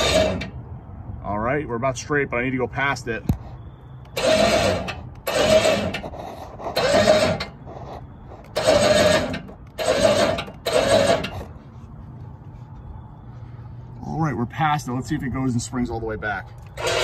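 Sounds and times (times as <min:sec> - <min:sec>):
winch motor whining bursts: 0:00.0 - 0:00.6, 0:04.0 - 0:11.5, 0:16.8 - 0:17.0.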